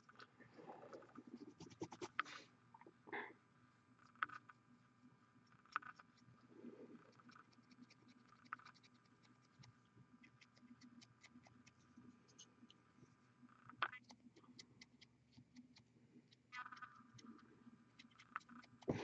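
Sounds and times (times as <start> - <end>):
low steady hum: 0.0 - 19.0.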